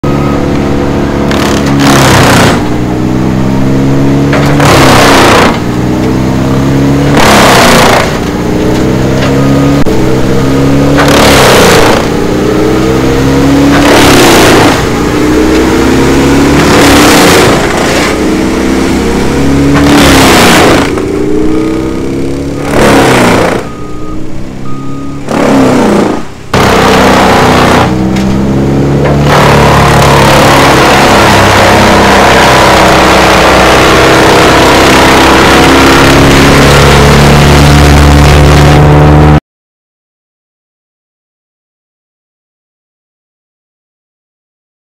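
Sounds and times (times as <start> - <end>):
chipper engine labouring: 0.0 - 39.4
tree chipper crunching branches: 1.2 - 2.7, 4.2 - 6.2, 7.0 - 9.4, 13.6 - 15.0, 25.2 - 37.7.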